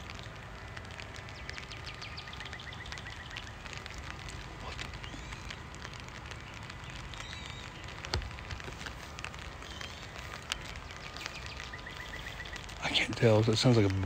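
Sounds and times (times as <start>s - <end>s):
rain pattering: 0.0s - 14.0s
faint bird chirps: 4.6s - 8.0s, 9.6s - 13.2s.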